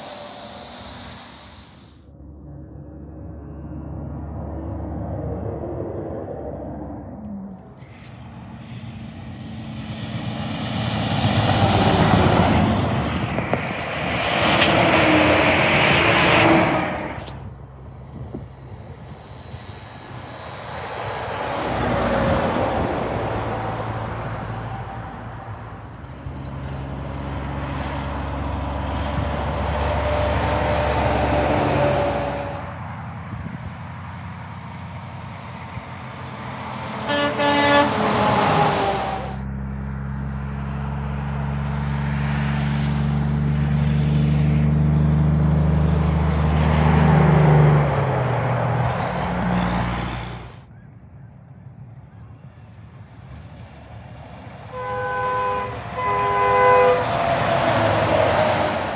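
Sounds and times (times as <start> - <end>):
diesel engine running: 0.0 - 50.8
trucks driving past: 0.0 - 58.9
truck horn honking: 29.8 - 32.8, 36.9 - 39.4, 54.7 - 58.6.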